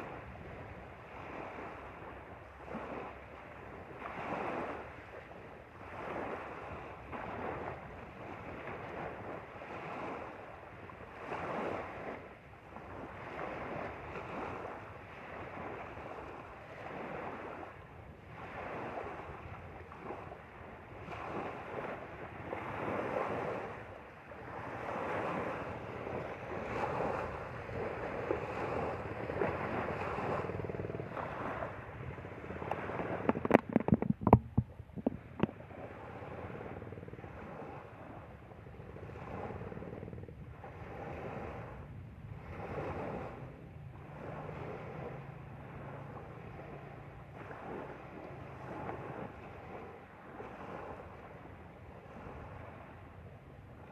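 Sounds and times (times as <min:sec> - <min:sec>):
waves lapping on gravel shore: 0:00.0 - 0:38.1.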